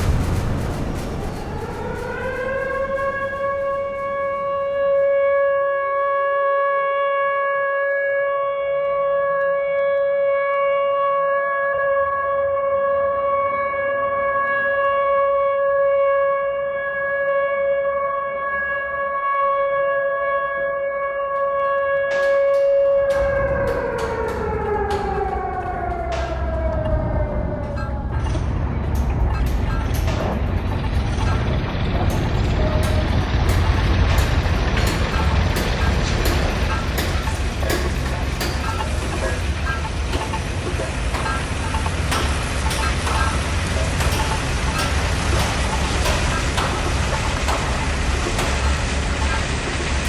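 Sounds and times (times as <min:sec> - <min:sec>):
crashing noise: 0:00.0 - 0:05.0
low rumble: 0:00.0 - 0:05.0, 0:23.1 - 0:50.0
siren tone rising: 0:00.0 - 0:50.0
fainter second siren tone: 0:00.1 - 0:50.0.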